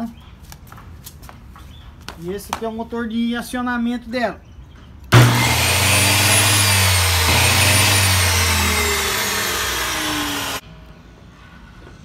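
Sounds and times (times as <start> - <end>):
table saw motor humming: 5.2 - 10.6.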